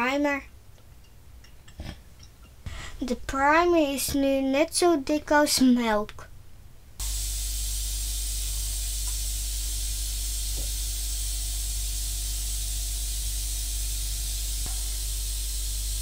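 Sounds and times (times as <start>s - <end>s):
air hissing: 7.0s - 16.0s
motor hum: 7.0s - 16.0s.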